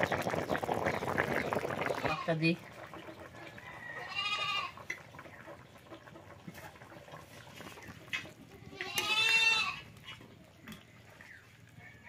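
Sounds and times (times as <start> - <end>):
goat bleating: 4.0 - 4.8, 8.6 - 9.9.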